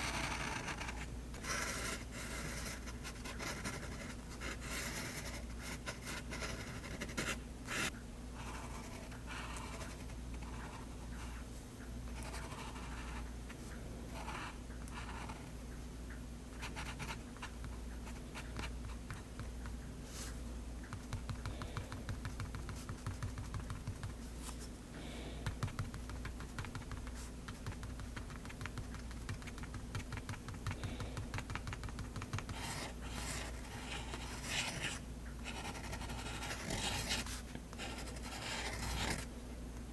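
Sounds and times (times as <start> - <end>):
pen nib scratching on paper: 0.0 - 11.4, 25.5 - 39.3.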